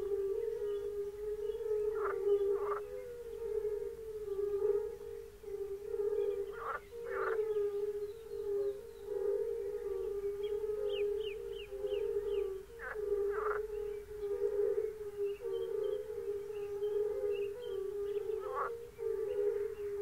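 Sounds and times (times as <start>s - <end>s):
chorus of toads calling: 0.0s - 20.0s.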